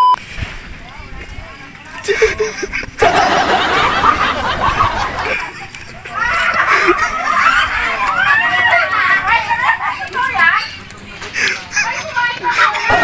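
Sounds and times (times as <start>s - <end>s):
excited voices: 1.5s - 13.0s
laughter: 2.0s - 9.8s, 11.2s - 13.0s.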